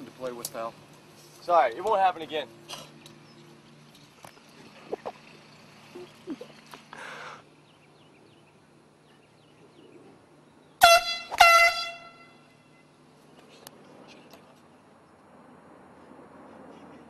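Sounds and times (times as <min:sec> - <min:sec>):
air horn blasts: 0:10.8 - 0:12.8.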